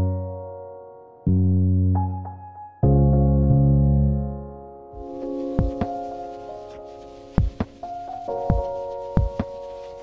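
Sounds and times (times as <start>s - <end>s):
soft keyboard chords: 0.0s - 10.0s.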